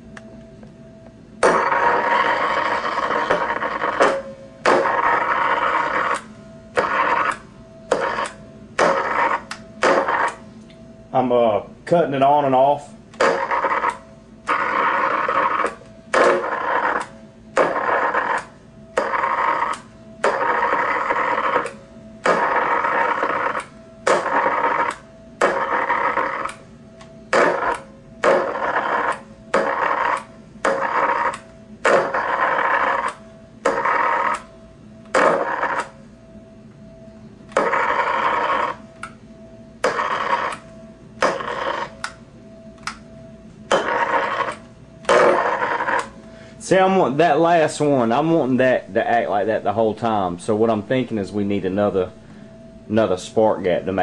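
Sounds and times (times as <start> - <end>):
electrical arcing buzz: 1.2 - 36.6, 37.2 - 54.0.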